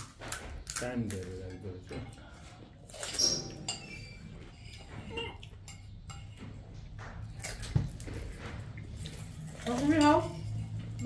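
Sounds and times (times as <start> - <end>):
mouth and chewing noises: 6.3 - 9.7.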